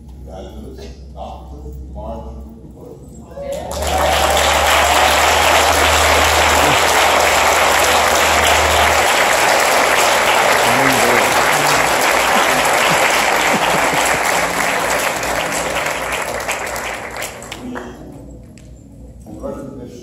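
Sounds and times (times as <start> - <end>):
crowd applauding: 3.4 - 18.0.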